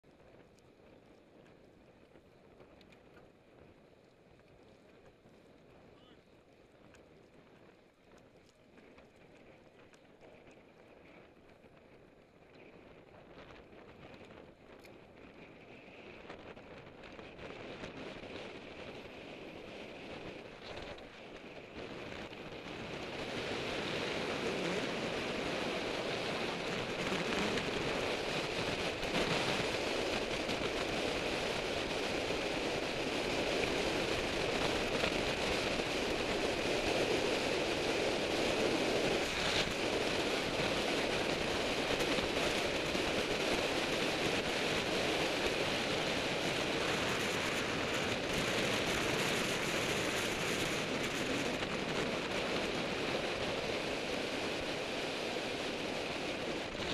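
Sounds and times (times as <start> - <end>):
wind roaring over microphone: 0.1 - 56.9.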